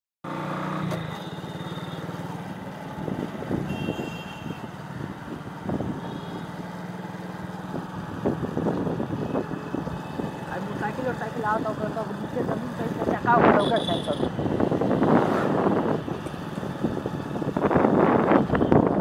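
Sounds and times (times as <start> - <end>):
road rumble: 0.2 - 19.0
motorcycle engine running: 0.3 - 19.0.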